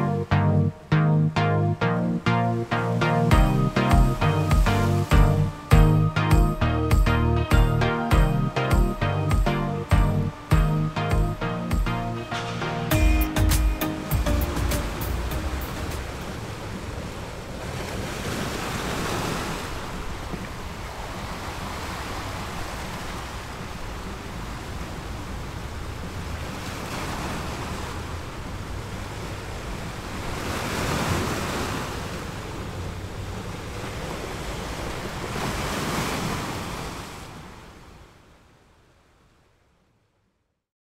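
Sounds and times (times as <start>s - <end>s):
wind: 0.0s - 40.6s
sea waves washing onto shore: 11.7s - 38.2s.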